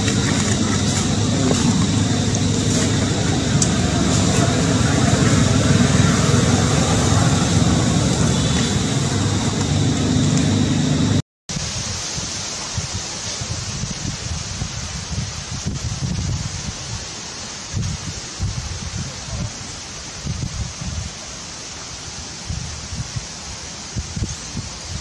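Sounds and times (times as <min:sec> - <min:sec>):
low rumble outdoors: 0:00.0 - 0:11.2.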